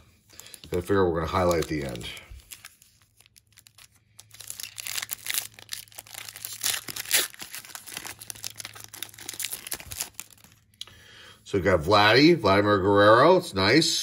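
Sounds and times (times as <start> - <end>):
foil wrapper tearing and crinkling: 0.4 - 10.7.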